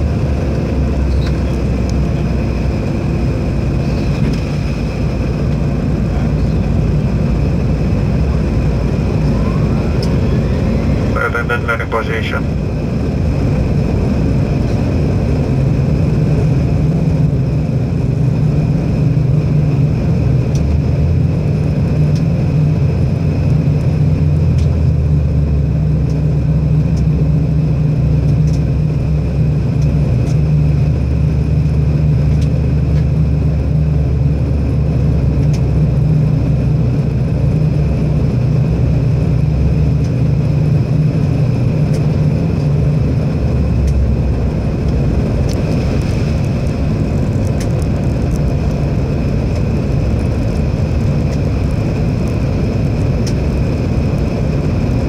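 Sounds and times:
engine and air drone: 0.0 - 55.0
high whine: 0.8 - 18.0.

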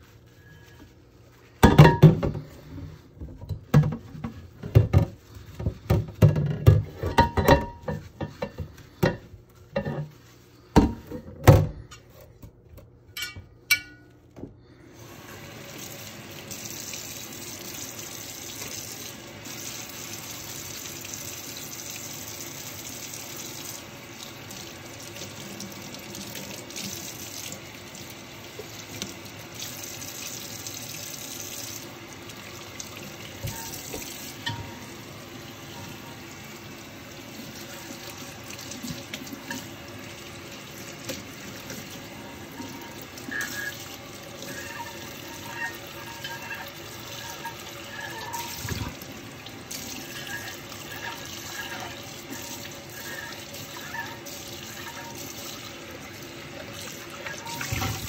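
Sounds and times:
sponge scrubbing a pot: 0.0 - 11.3, 33.1 - 34.9, 35.5 - 58.0
tap water running into sink: 15.3 - 58.0.

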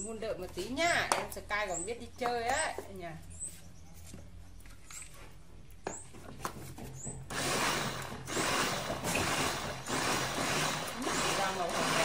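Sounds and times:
portable blender running: 7.3 - 12.0.

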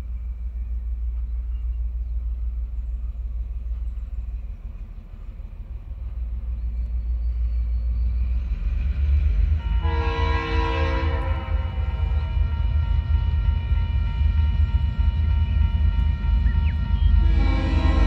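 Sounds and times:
diesel locomotives rumbling: 0.0 - 18.0
locomotive horn chord: 9.6 - 18.0.

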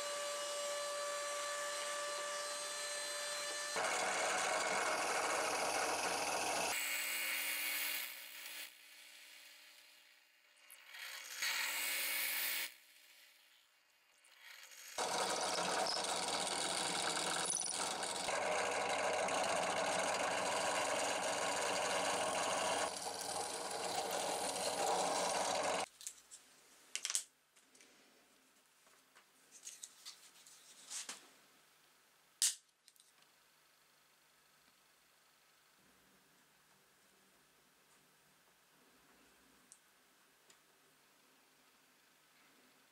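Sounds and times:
drill press boring into wood: 0.0 - 6.8, 15.0 - 25.9.

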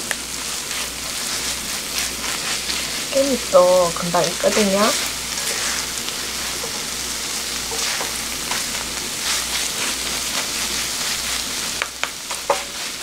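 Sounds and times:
rice sizzling in frying pan: 0.0 - 13.0
wooden spatulas clicking on pan: 11.8 - 12.7.

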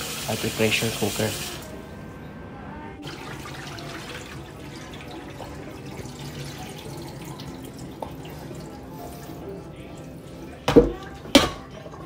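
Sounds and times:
rinse water pouring: 0.0 - 1.8, 3.0 - 12.0
water splashing into a steel sink: 3.0 - 9.0.

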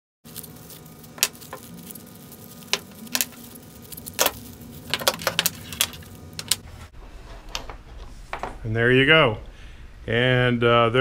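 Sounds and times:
plastic crinkling: 0.3 - 6.6
small steel tools clinking: 0.3 - 6.6.

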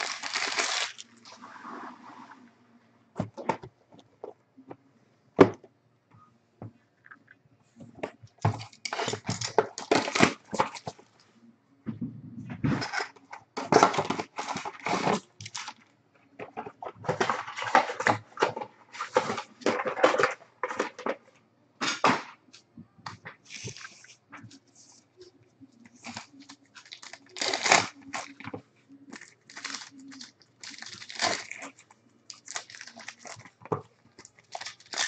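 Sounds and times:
foil card packs crinkling: 0.0 - 1.3, 8.5 - 11.0, 12.8 - 15.8, 25.9 - 35.0.

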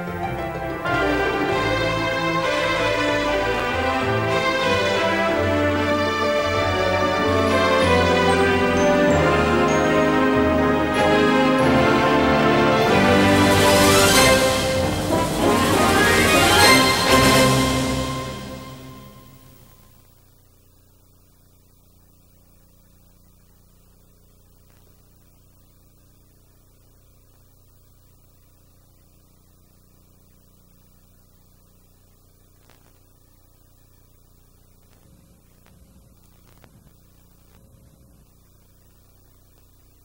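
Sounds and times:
faint electrical hum: 0.0 - 40.0
tape hiss: 0.0 - 40.0
faint clicks and crackles: 24.5 - 25.4, 31.6 - 40.0.

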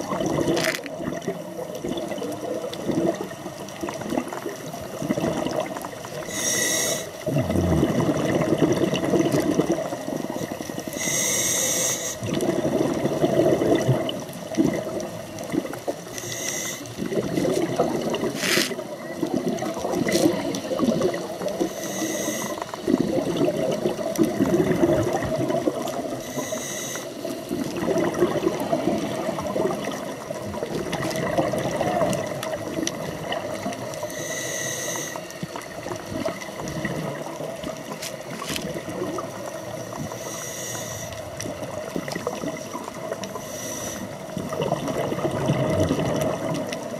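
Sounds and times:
exhaled bubbles gurgling: 0.0 - 46.9
regulator inhalation hiss: 6.2 - 7.2, 10.8 - 12.2, 16.1 - 17.0, 21.6 - 22.9, 26.2 - 27.5, 34.0 - 35.5, 39.9 - 41.2, 43.4 - 44.3.

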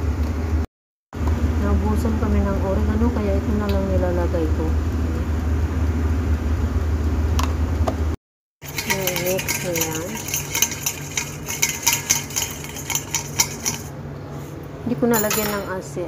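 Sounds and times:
metal spoon scraping steel bowl: 8.6 - 13.9, 15.2 - 15.8
spoon clinking against steel: 8.6 - 13.9, 15.1 - 15.9.

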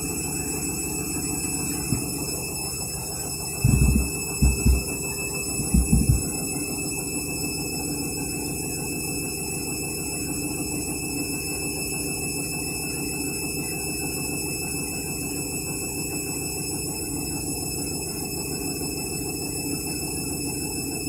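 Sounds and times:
washing machine spinning: 0.0 - 6.6.

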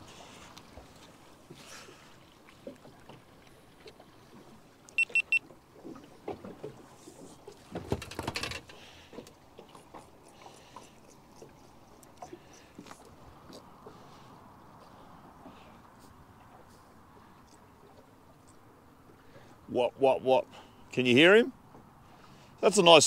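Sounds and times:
faint water sounds: 0.0 - 23.0
short high electronic beeps: 5.0 - 5.4.

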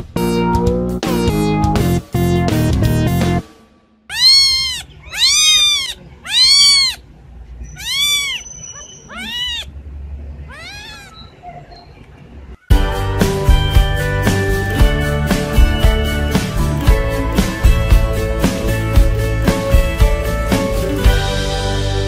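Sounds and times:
kitten meowing: 4.1 - 7.0, 7.6 - 9.7, 10.5 - 11.3
piano music: 12.7 - 22.0.

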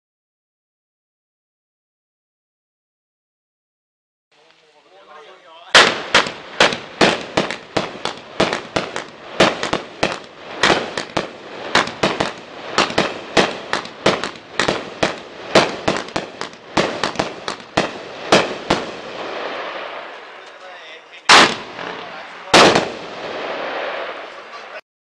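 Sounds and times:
firework cake bangs: 5.7 - 20.0, 21.2 - 24.8.

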